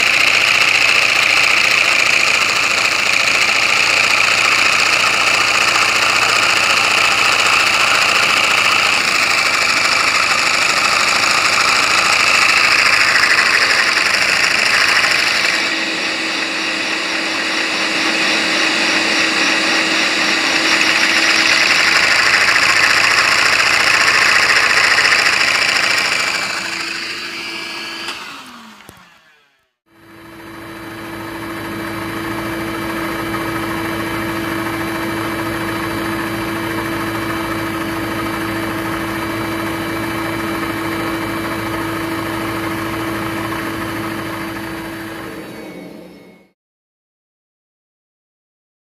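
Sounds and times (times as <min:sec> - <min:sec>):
toy engine whirring: 0:00.0 - 0:29.7.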